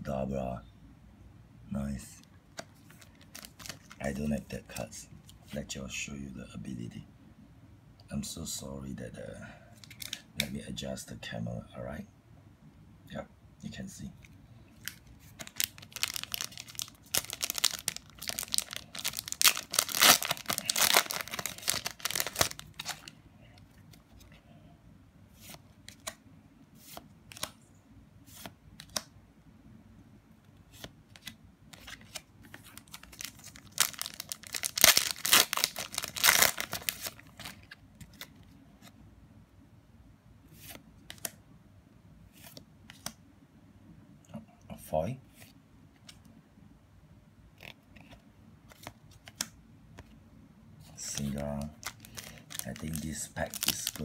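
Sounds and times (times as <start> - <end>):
foil wrapper tearing and crinkling: 3.0 - 4.0, 14.8 - 23.1, 31.8 - 38.3, 51.1 - 54.0
cards clicking while handled: 40.6 - 41.4, 47.6 - 50.1.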